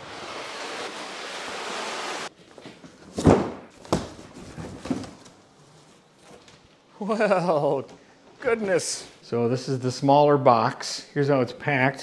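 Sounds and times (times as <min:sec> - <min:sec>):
cardboard box thuds: 0:03.1 - 0:05.3.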